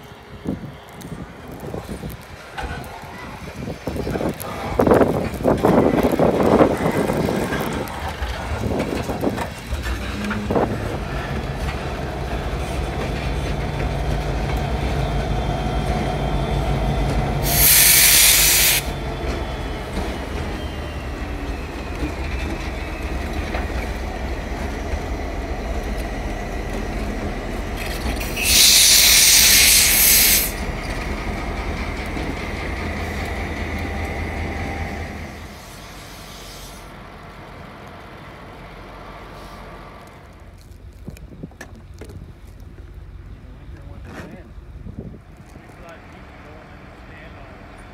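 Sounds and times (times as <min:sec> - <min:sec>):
diesel locomotives rumbling: 0:00.0 - 0:47.9
train cars on rails: 0:00.0 - 0:47.9
air hiss bursts: 0:17.4 - 0:19.0, 0:28.2 - 0:30.6.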